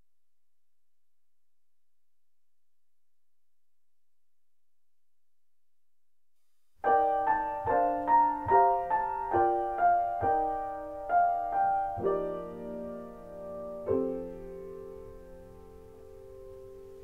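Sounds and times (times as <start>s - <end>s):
piano melody: 6.8s - 17.0s.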